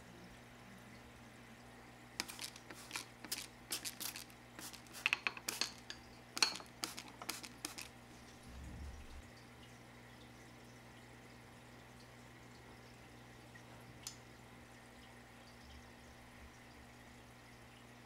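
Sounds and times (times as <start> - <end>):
water spritzes from spray bottle: 2.2 - 8.0.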